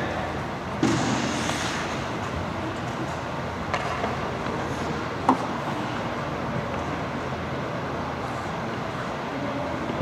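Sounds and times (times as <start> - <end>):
indoor ice rink background noise: 0.0 - 10.0.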